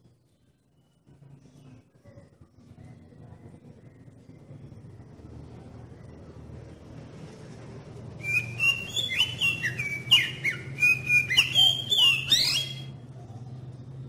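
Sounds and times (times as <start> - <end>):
bird singing whistled phrases: 8.2 - 12.9.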